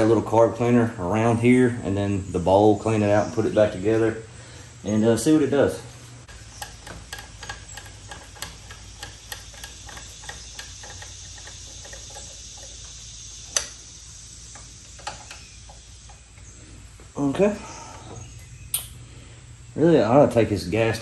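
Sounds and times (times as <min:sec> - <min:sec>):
screwdriver clicking on screws: 0:06.3 - 0:12.9.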